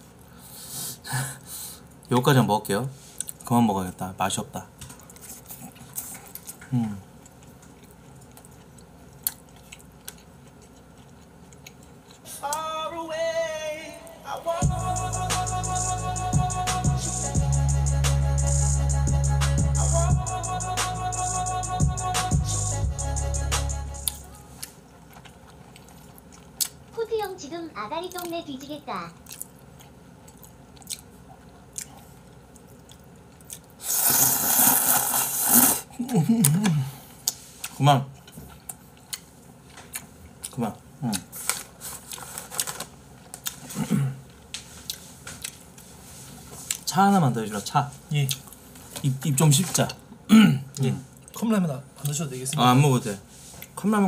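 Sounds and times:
quiet chewing: 0:04.8 - 0:12.7, 0:24.0 - 0:27.0, 0:29.1 - 0:35.6, 0:36.4 - 0:46.9.

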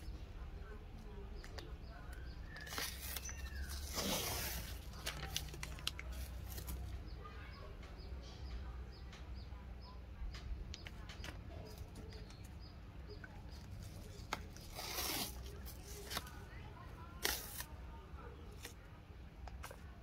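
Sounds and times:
crackles and handling clicks: 0:00.9 - 0:07.0, 0:10.3 - 0:16.5
tape unrolling rasp: 0:02.5 - 0:06.8, 0:13.5 - 0:16.4, 0:17.2 - 0:17.7.

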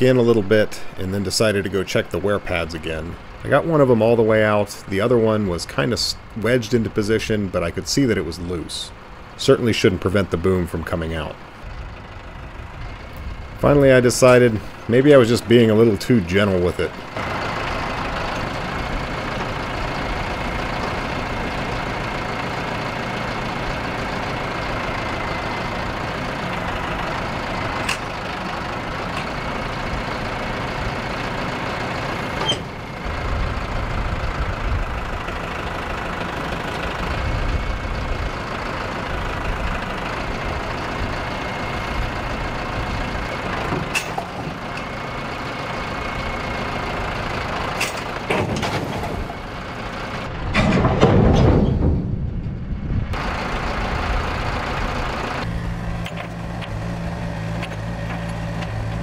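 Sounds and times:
heavy equipment engine running: 0:00.0 - 0:59.0
sharp metallic knocks: 0:50.5 - 0:52.2.

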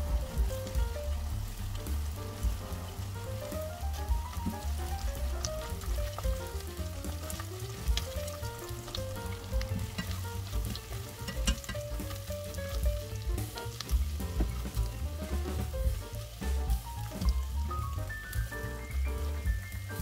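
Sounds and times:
onion sizzling in hot oil: 0:00.0 - 0:20.0
spatula stirring: 0:01.7 - 0:17.5.

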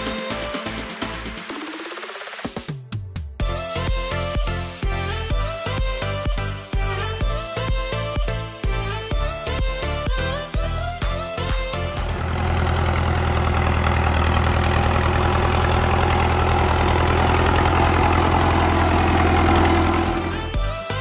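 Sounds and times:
music: 0:00.0 - 0:21.0
tractor diesel engine running: 0:11.8 - 0:20.8.

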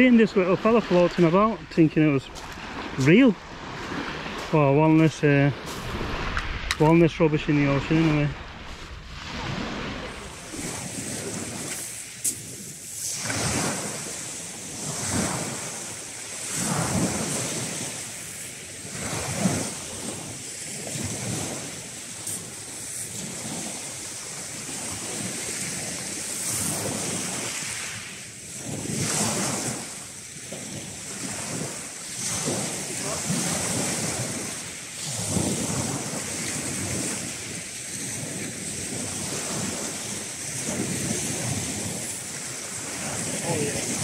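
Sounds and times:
wind buffeting microphone: 0:00.0 - 0:15.8
waves washing up shingle beach: 0:00.0 - 0:44.0.

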